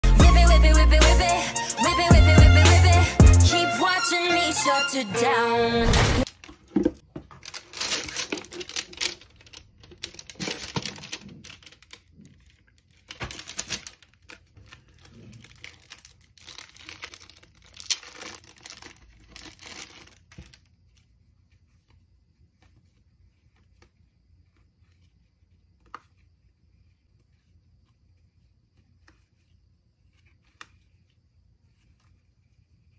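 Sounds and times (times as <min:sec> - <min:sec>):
cardboard and plastic wrap rustling: 0:06.2 - 0:23.9.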